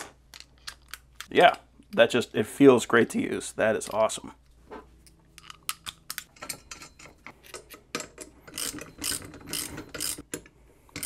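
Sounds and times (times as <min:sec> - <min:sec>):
socket ratchet clicking: 0:08.5 - 0:11.0.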